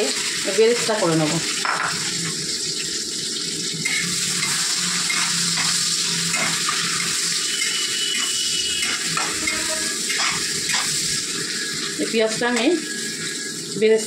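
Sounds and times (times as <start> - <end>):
onions sizzling in hot oil: 0.0 - 14.0
metal spatula scraping pan: 3.8 - 11.0.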